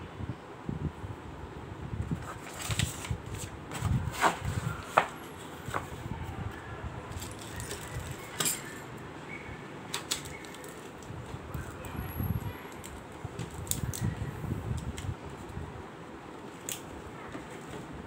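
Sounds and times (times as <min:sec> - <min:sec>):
cardboard packaging rustling: 0:02.1 - 0:06.0, 0:07.1 - 0:08.4, 0:09.9 - 0:11.9.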